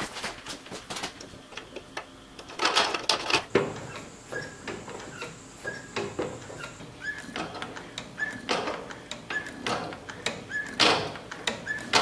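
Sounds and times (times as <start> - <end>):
pedal squeaking: 2.6 - 12.0
metal linkage clicks: 4.7 - 12.0.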